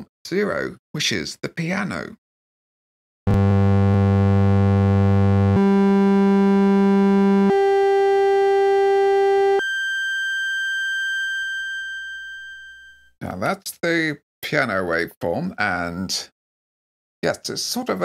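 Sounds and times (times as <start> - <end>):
buzzy synthesizer notes: 3.3 - 11.4.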